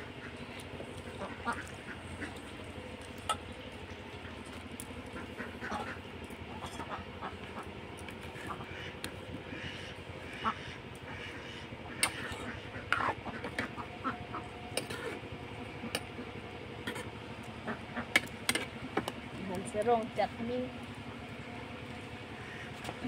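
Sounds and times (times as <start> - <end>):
metal ladle scraping a wok: 12.0 - 13.6, 14.7 - 15.2.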